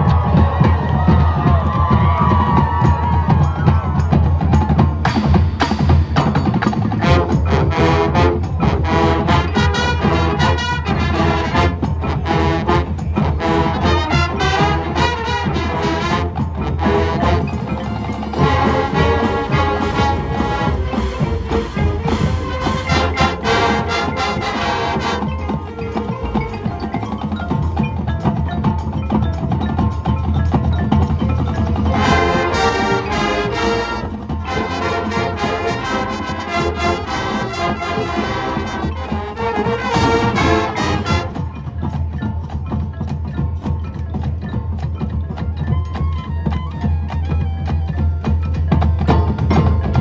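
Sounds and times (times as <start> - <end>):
marching band playing: 0.0 - 50.0
marimbas and mallet percussion: 0.0 - 50.0.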